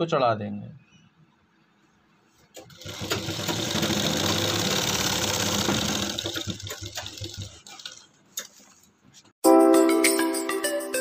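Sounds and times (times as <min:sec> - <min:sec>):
sewing machine stitching: 0:02.5 - 0:08.7.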